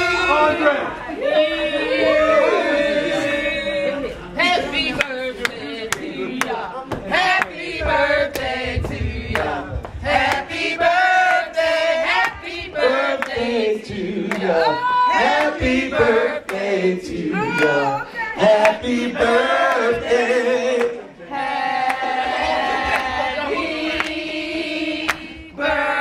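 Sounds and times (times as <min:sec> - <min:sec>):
group singing: 0:00.0 - 0:26.0
hands clapping: 0:08.3 - 0:10.5, 0:24.0 - 0:24.2, 0:25.0 - 0:25.3.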